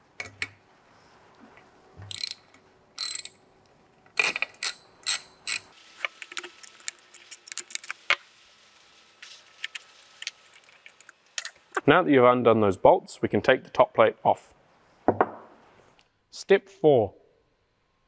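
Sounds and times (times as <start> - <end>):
hand ratchet clicking: 2.1 - 2.4, 3.0 - 3.4, 4.2 - 5.7.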